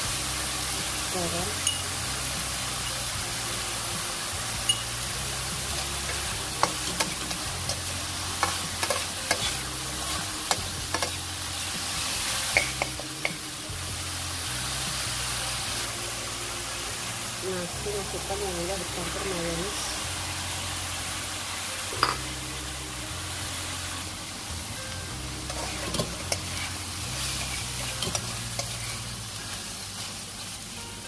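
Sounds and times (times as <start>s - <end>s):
food sizzling in a wok: 0.0s - 31.0s
metal spatula scraping wok: 5.8s - 11.8s, 25.4s - 29.3s.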